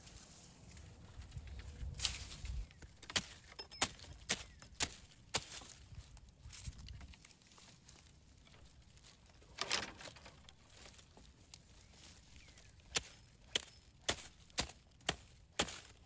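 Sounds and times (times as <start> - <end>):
dry stems rustling: 0.0 - 16.0
hatchet chopping wood: 3.1 - 5.6, 12.9 - 16.0.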